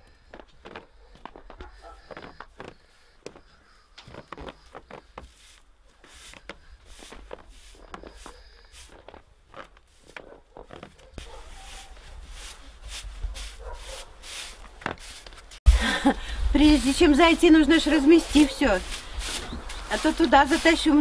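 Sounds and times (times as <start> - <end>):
broom sweeping snow off steps: 4.1 - 10.2, 11.2 - 16.0, 16.6 - 21.0.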